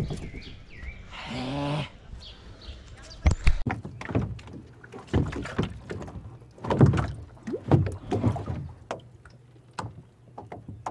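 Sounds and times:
water splashing: 0:03.4 - 0:10.9
knocks against kayak hull: 0:03.7 - 0:09.0.

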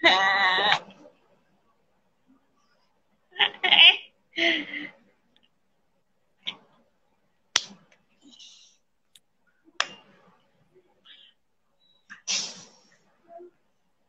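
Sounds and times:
short hiss: 0:12.1 - 0:13.0.

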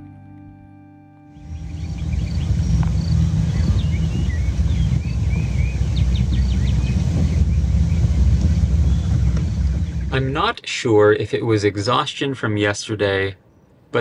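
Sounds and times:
small birds chirping and trilling: 0:01.4 - 0:10.4
wind buffeting microphone: 0:01.4 - 0:10.5.

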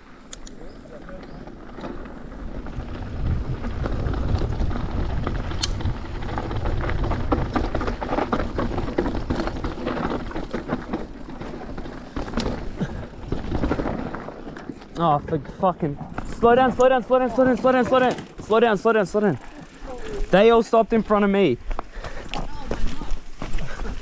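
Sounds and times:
bike rattling over rough ground: 0:00.0 - 0:24.0
tyres crunching on dirt: 0:00.7 - 0:24.0
wind rushing over microphone: 0:02.4 - 0:09.6.

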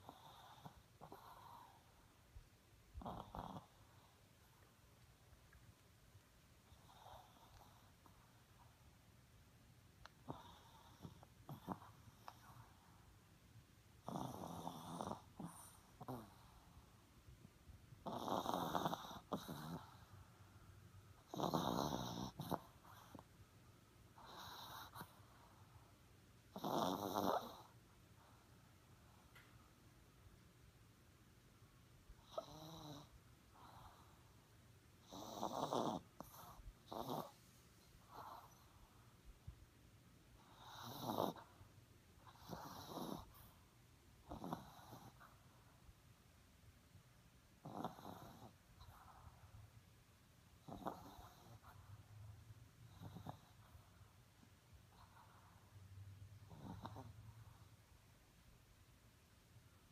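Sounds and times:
dog snoring: 0:00.0 - 0:02.1, 0:03.0 - 0:04.6, 0:06.7 - 0:08.8, 0:10.0 - 0:13.0, 0:14.0 - 0:16.9, 0:18.0 - 0:20.2, 0:21.2 - 0:23.3, 0:24.1 - 0:25.9, 0:26.5 - 0:28.4, 0:32.2 - 0:34.4, 0:35.0 - 0:39.0, 0:40.4 - 0:41.6, 0:42.2 - 0:43.6, 0:44.2 - 0:45.7, 0:47.6 - 0:49.5, 0:50.6 - 0:52.1, 0:52.8 - 0:54.0, 0:54.8 - 0:55.7, 0:56.4 - 0:57.7.

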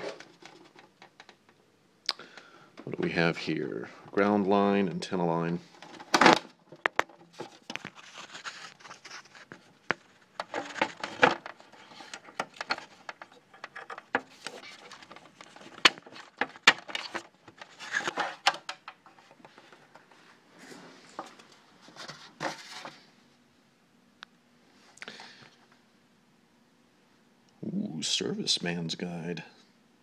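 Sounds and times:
rubbing and rustling: 0:06.8 - 0:23.1.

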